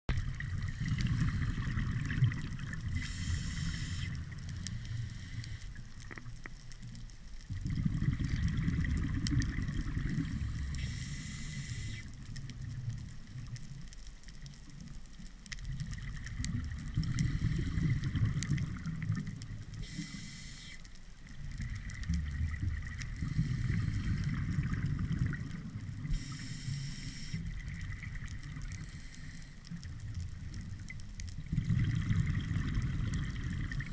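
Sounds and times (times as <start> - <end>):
exhaled air bubbling underwater: 0.1 - 33.9
regulator hiss on inhale: 0.5 - 2.1, 2.8 - 6.0, 10.0 - 12.4, 16.9 - 18.6, 19.6 - 21.4, 23.0 - 24.7, 26.0 - 28.0, 28.6 - 30.0.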